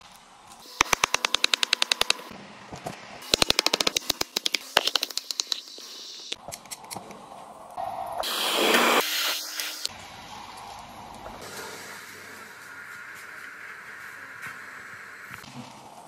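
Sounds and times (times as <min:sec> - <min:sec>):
blowtorch hissing: 0:08.2 - 0:09.9.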